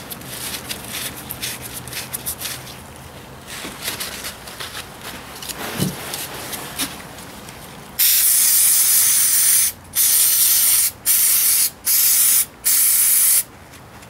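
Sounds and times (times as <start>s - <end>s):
aerosol spray hissing: 8.0s - 13.5s.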